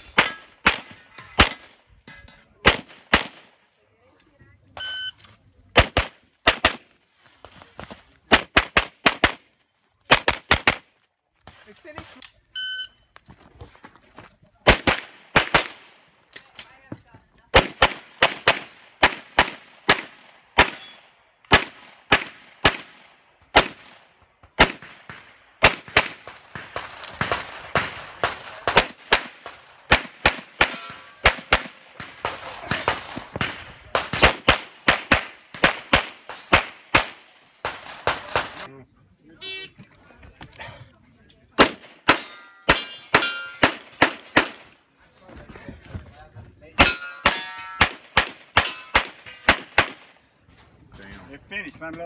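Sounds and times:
pistol shots: 2.6 - 3.5, 14.6 - 16.0, 17.5 - 38.7, 41.6 - 44.7, 46.8 - 50.1
shot timer beep: 4.8 - 5.2, 12.5 - 13.1.

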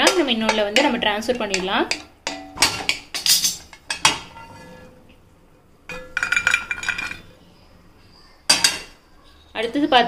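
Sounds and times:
nuts clinking into steel pot: 5.9 - 7.3.

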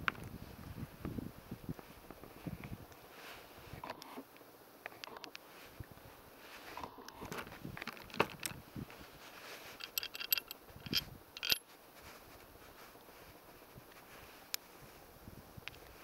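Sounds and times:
metallic clicks of pistol parts: 9.8 - 11.6
ringing metal clinks: 9.8 - 11.6.

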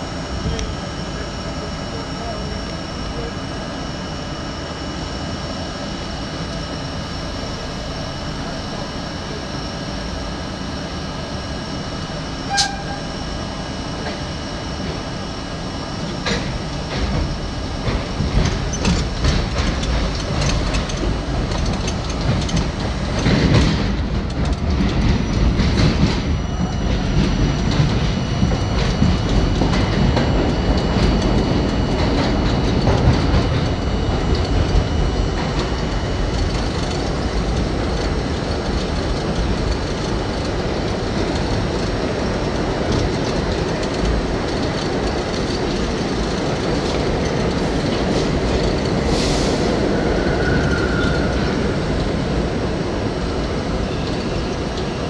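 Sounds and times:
subway train humming: 0.0 - 55.0
train rumble: 0.0 - 55.0
wheels clacking over rail joints: 16.0 - 49.0.

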